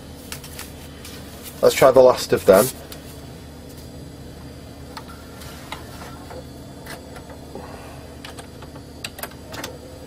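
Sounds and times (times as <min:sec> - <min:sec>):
low hum: 0:02.2 - 0:10.0.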